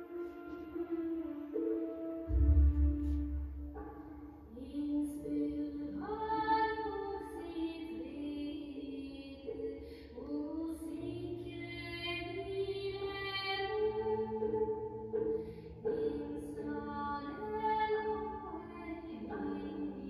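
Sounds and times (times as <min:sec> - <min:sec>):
slow melody with sliding notes: 0:00.0 - 0:09.0.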